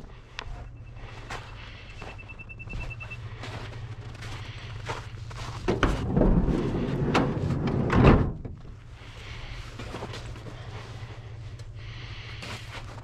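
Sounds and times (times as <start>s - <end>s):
door clatter: 5.7s - 8.6s
van door slamming: 5.7s - 8.6s.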